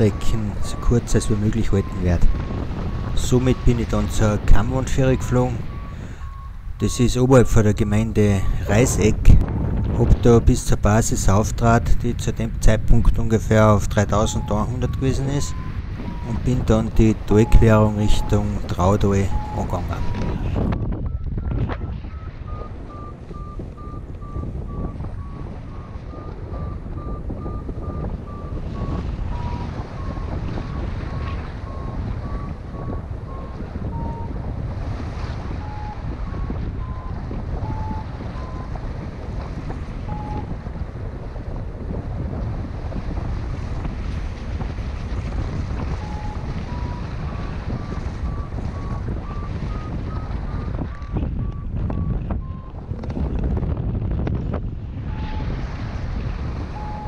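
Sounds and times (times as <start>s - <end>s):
variometer beeping: 0.0s - 10.1s, 13.9s - 34.5s, 35.4s - 38.9s, 40.0s - 40.6s, 45.8s - 52.8s, 55.1s - 55.5s, 56.7s - 57.0s
wind noise on microphone: 0.0s - 57.0s.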